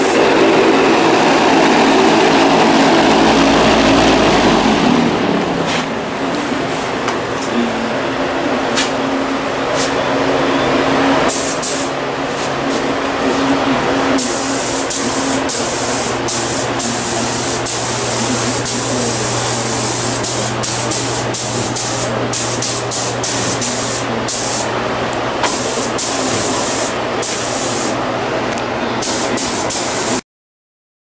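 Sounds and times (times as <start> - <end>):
steady low hum: 0.0 - 29.6
pneumatic tool air hissing: 11.3 - 12.0, 14.2 - 24.7, 25.4 - 28.0, 29.0 - 30.2.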